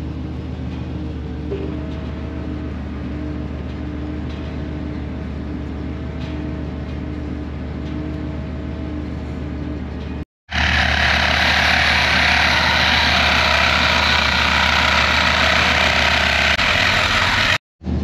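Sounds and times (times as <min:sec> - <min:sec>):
reciprocating saw cutting pipe: 0:10.5 - 0:17.6.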